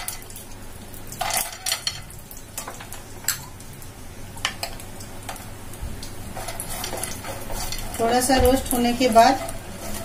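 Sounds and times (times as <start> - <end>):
faint sizzle: 0.0 - 10.0
nuts clattering into pan: 1.2 - 3.4.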